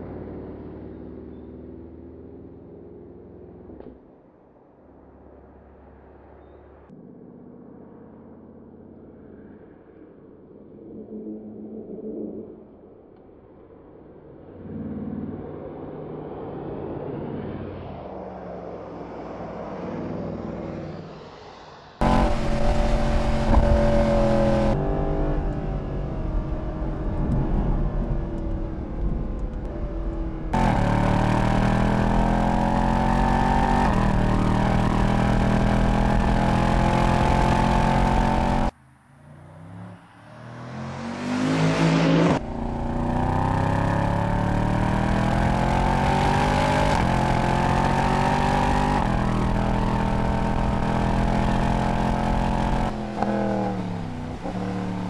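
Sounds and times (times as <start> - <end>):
car engine accelerating: 22.0 - 55.0.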